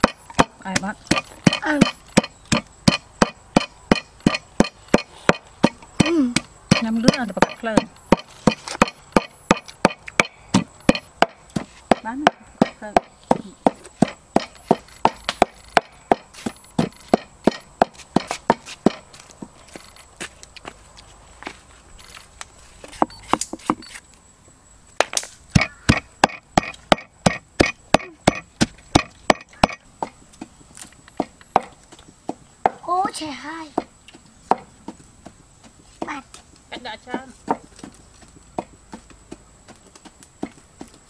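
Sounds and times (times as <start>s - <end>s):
pestle pounding in a mortar: 0.0s - 19.1s, 25.5s - 30.2s, 33.8s - 36.2s.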